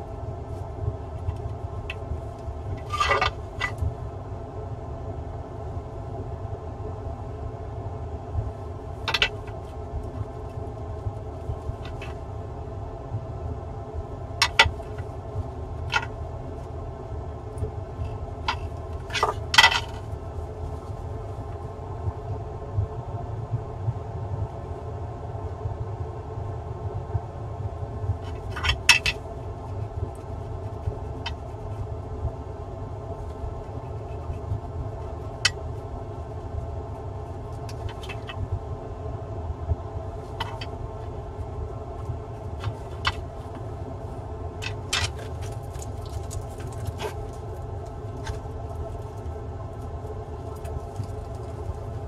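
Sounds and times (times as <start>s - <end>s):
low equipment hum: 0.0s - 52.0s.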